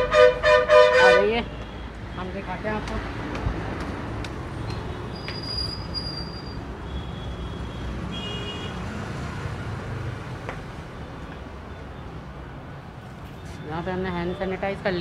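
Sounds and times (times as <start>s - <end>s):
road traffic rumble: 0.0s - 15.0s
thin high-pitched squeals: 5.1s - 6.6s.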